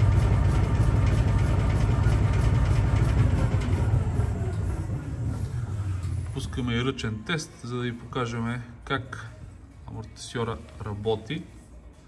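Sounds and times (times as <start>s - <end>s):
low mechanical drone: 0.0s - 8.1s.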